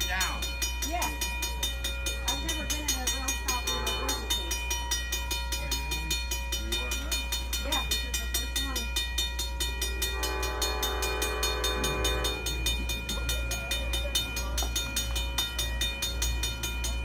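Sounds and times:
crossing bell ringing: 0.0 - 17.0
train horn: 3.6 - 4.4, 10.0 - 12.6.

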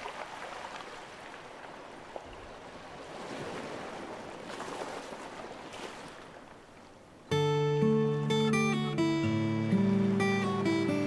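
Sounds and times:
ocean waves washing on shore: 0.0 - 7.5.

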